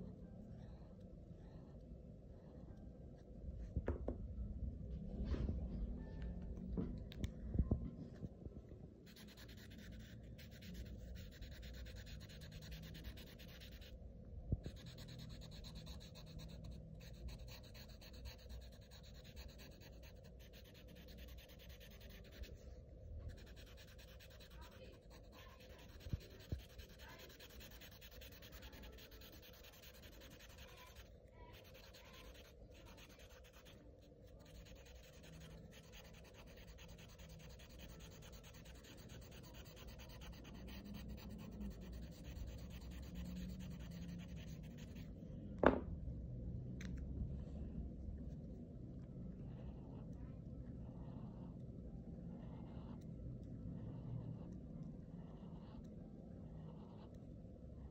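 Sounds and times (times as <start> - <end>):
marker rubbing on paper: 9.0 - 14.0, 14.6 - 22.6, 23.3 - 45.1.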